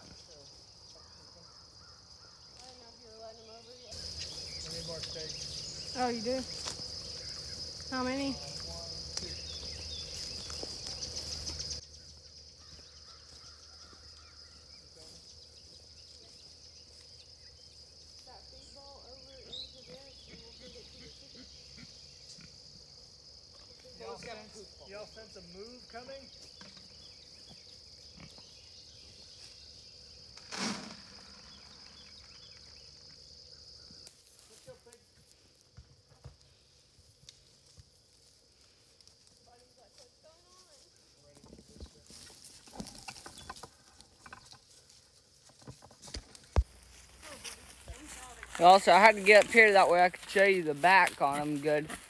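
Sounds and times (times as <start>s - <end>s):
crickets and insects trilling: 0.0s - 52.0s.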